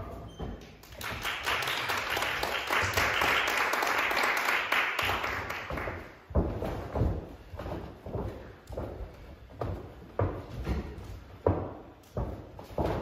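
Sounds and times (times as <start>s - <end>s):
small audience clapping: 0.8s - 6.2s.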